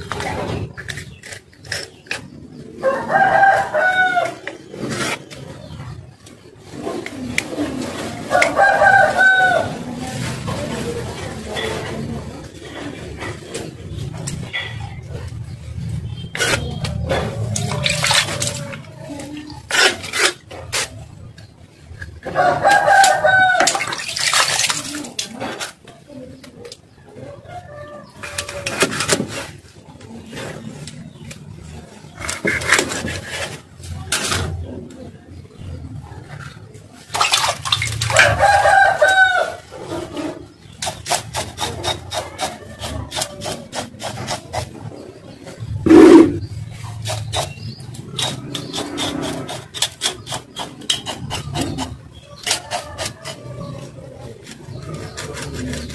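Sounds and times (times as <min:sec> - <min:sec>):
rooster crowing: 0:02.8 - 0:04.4, 0:08.3 - 0:09.8, 0:22.3 - 0:23.7, 0:38.1 - 0:39.6
fish scraping on chopping block: 0:16.3 - 0:18.6, 0:32.2 - 0:33.6, 0:45.9 - 0:53.4.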